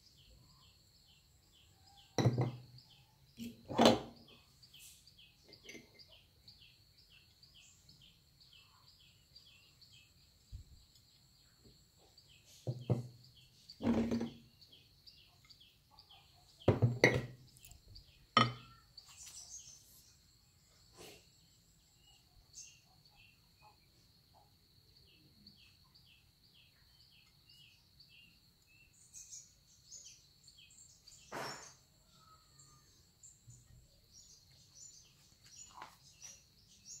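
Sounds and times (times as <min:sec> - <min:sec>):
birds chirping: 0:00.0 - 0:37.0
knocks on wooden tabletop: 0:02.2 - 0:02.6, 0:12.6 - 0:13.2, 0:13.8 - 0:14.4, 0:16.7 - 0:17.4, 0:18.4 - 0:18.7.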